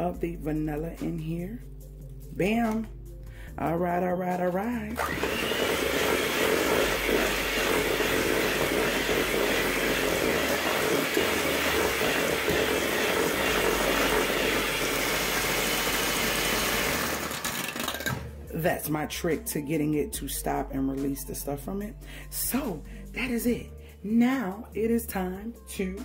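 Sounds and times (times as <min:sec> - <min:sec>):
electric mixer beating dough: 0:05.0 - 0:18.2.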